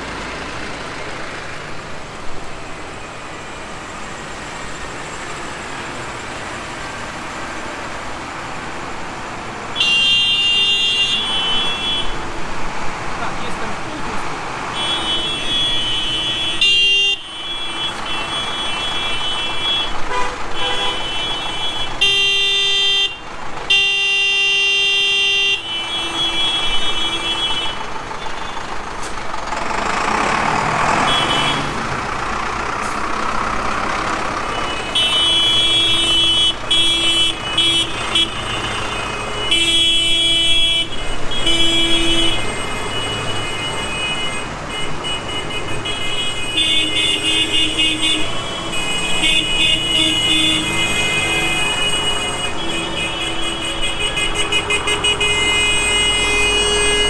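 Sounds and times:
tractor diesel engines: 0:00.0 - 0:57.0
horns honking: 0:09.7 - 0:12.4, 0:14.5 - 0:29.2, 0:30.2 - 0:33.1, 0:33.8 - 0:57.0.

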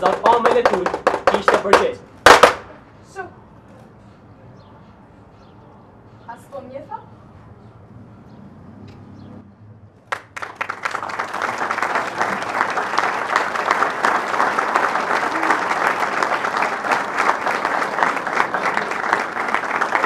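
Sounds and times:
audience clapping: 0:00.0 - 0:02.6, 0:10.1 - 0:20.0.

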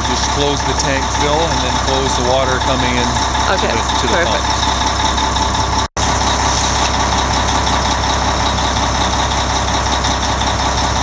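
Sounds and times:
thin steady whine: 0:00.0 - 0:05.0
fire truck engine idling: 0:00.0 - 0:11.0.

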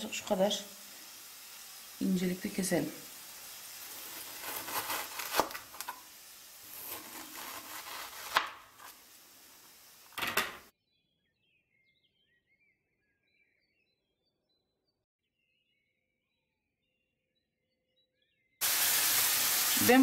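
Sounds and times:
knife sawing through frozen meat: 0:04.0 - 0:05.9, 0:06.7 - 0:08.9
faint bird chirps: 0:10.8 - 0:18.6.

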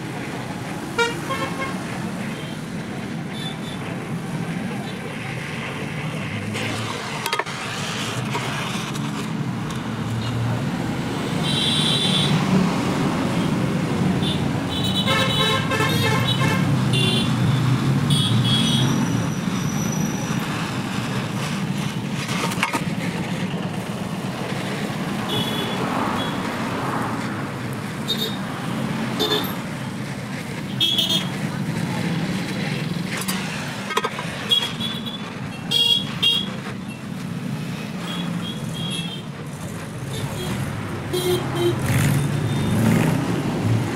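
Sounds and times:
road traffic: 0:00.0 - 0:43.9
vehicle horns honking: 0:01.0 - 0:01.7, 0:11.4 - 0:12.4, 0:14.2 - 0:17.4, 0:18.1 - 0:19.0, 0:25.3 - 0:26.4, 0:29.2 - 0:29.6, 0:30.8 - 0:31.3, 0:34.4 - 0:36.6, 0:40.1 - 0:42.9.

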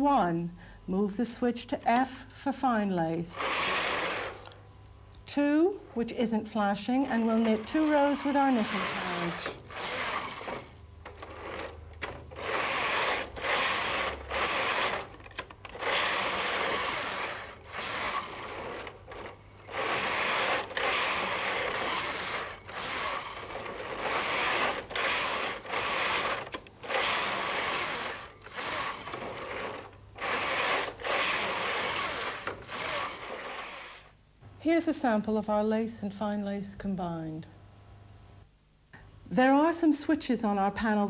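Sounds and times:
knitting machine carriage rattling: 0:07.0 - 0:33.8.

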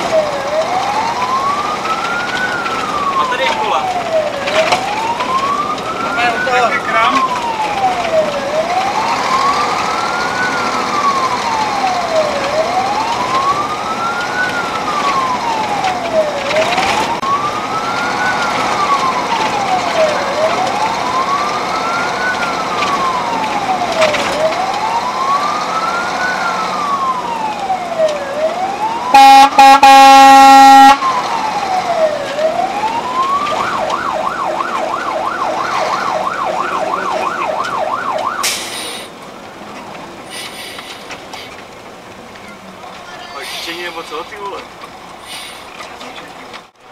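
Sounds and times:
fire engine siren wailing: 0:00.0 - 0:46.9
loud horn blast: 0:29.1 - 0:31.0.

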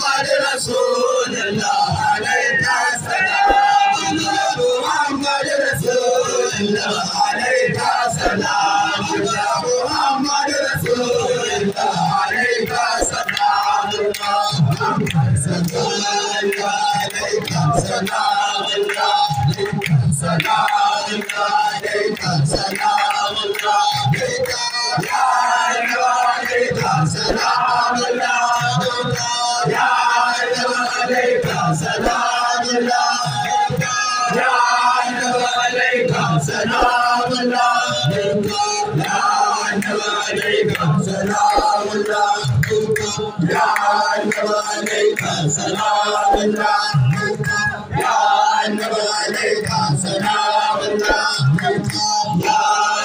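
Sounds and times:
lead voice over a microphone: 0:00.0 - 0:25.1
men chanting rhythmically: 0:00.0 - 0:53.0.

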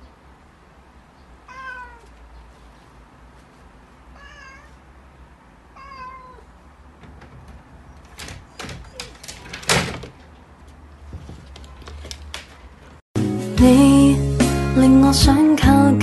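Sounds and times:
cat meowing: 0:01.4 - 0:02.1, 0:04.1 - 0:04.8, 0:05.7 - 0:06.6
cat knocking on wooden door: 0:07.0 - 0:10.2
metal door handle clicking: 0:07.0 - 0:10.4.

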